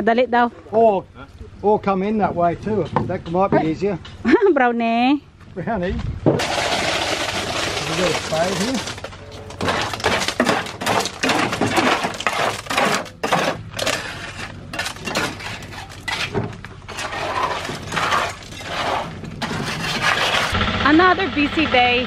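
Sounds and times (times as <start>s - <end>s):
trowel scraping wet concrete: 6.4s - 20.6s.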